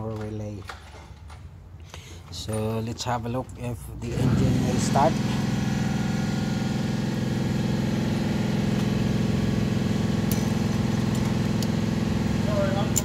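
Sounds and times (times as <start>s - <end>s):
car engine idling: 3.6s - 13.0s.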